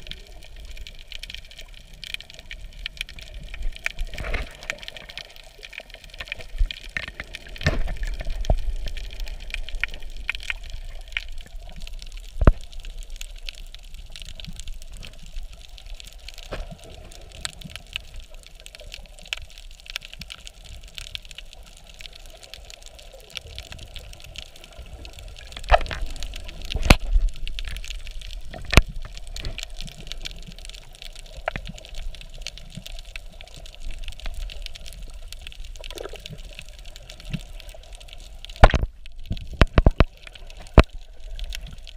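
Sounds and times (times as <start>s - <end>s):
underwater wash of water: 0.0s - 41.9s
sharp underwater clicks and knocks: 2.8s - 13.0s, 25.4s - 33.2s, 38.2s - 41.9s.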